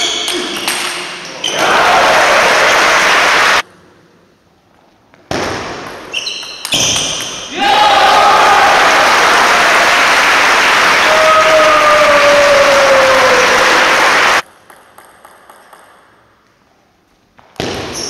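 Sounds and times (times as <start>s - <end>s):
spectators applauding and cheering: 1.5s - 3.6s, 7.6s - 14.4s
long shout falling in pitch: 7.6s - 14.4s.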